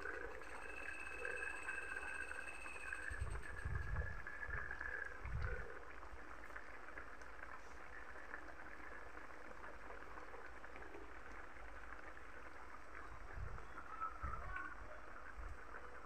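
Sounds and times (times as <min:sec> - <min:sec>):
stew bubbling in a wok: 0:00.0 - 0:16.0.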